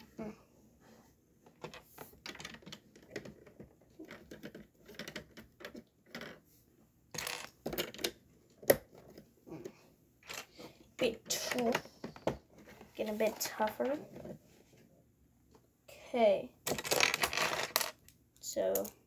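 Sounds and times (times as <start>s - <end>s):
plastic bricks clicking: 7.2s - 8.8s.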